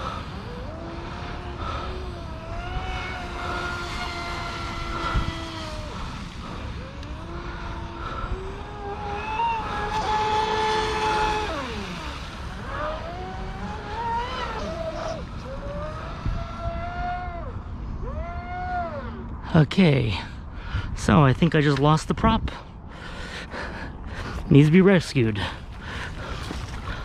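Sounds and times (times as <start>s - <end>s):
electric motor whining: 0.0s - 19.4s.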